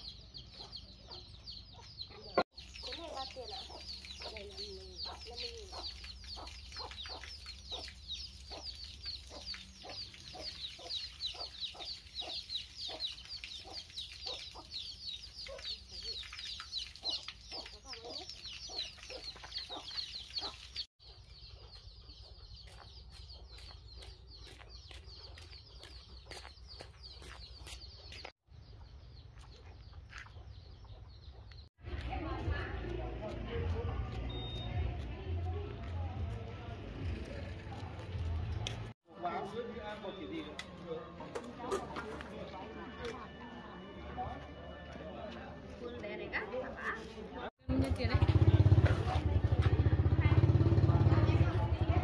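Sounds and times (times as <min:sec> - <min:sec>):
chicks peeping: 0:00.0 - 0:31.7.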